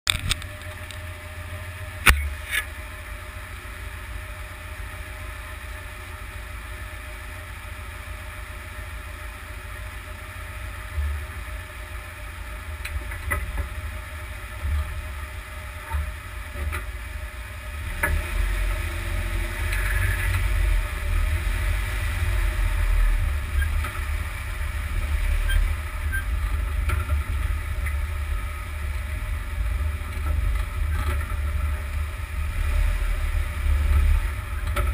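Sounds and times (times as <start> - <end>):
vehicle road rumble: 0.0 - 34.9.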